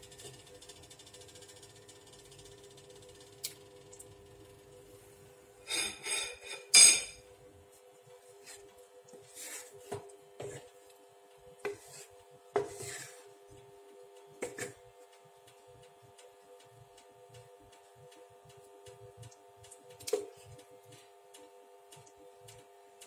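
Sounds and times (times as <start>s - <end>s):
wooden spatula scraping a pan: 8.4s - 10.7s, 11.6s - 13.3s.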